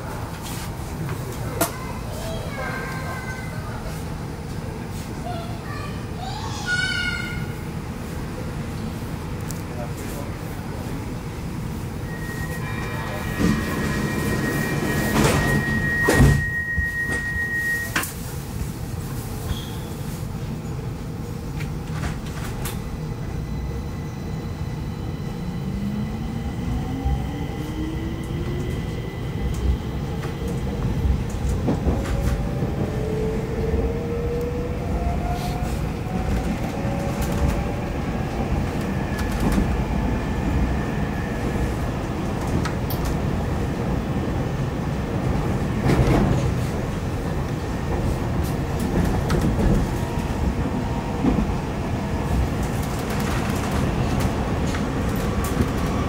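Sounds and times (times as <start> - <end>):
train rumbling: 0.0 - 56.0.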